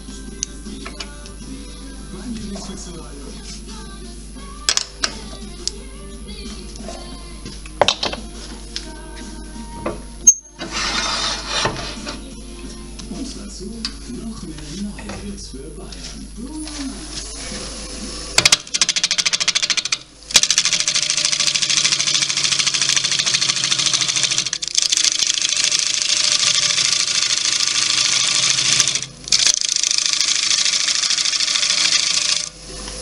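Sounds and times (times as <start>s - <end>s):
wood lathe cutting hiss: 16.6s - 18.9s, 19.7s - 33.0s.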